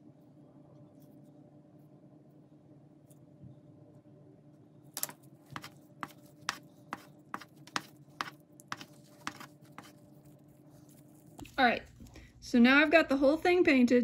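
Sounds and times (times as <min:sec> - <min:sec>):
die scrubbed on paper towel: 0:05.6 - 0:11.3.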